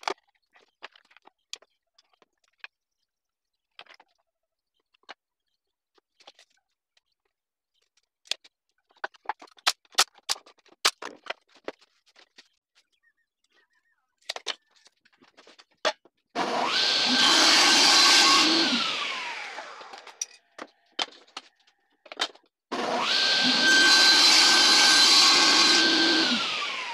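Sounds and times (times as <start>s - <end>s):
table saw running: 16.4s - 20.2s, 22.7s - 26.9s.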